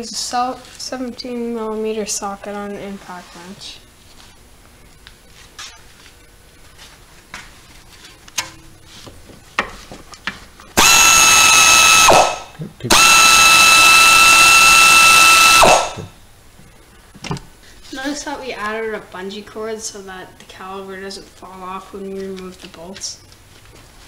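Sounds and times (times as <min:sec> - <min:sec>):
air impact wrench whine: 0:10.8 - 0:16.2.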